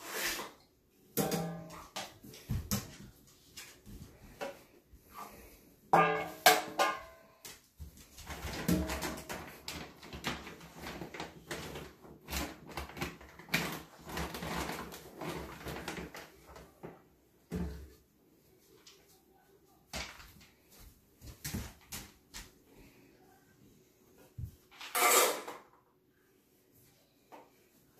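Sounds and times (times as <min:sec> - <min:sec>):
dry kibble rattling in a bin: 0:08.2 - 0:16.6.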